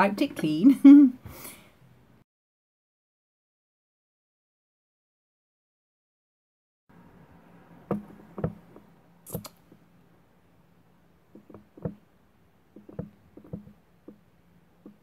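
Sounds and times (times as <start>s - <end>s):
mascara tube knocks and clicks: 7.9s - 8.9s, 11.3s - 12.0s, 12.7s - 14.2s.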